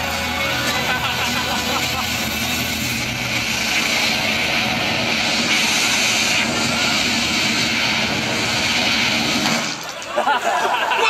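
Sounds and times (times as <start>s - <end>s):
rushing wind over loudspeakers: 0.8s - 9.6s.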